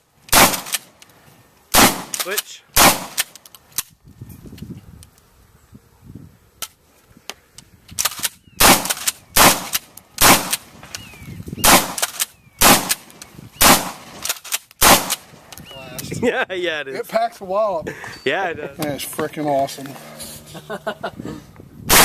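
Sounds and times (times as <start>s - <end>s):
shotgun shots: 0.3s - 0.9s, 1.7s - 3.4s, 8.0s - 10.8s, 11.6s - 15.4s
small clicks: 3.2s - 4.0s.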